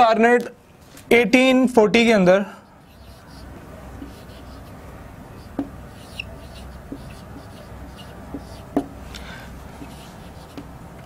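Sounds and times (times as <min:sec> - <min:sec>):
marker writing on whiteboard: 0:02.8 - 0:11.0.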